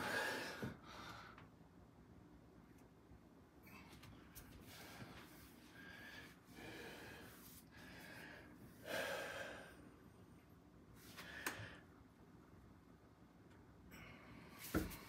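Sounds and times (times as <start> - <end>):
man breathing heavily through nose: 0.0 - 1.5, 4.6 - 10.0.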